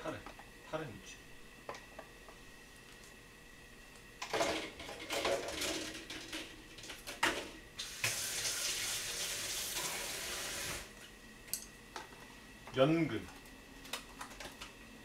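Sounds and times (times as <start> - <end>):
tap water running into sink: 7.8 - 10.8.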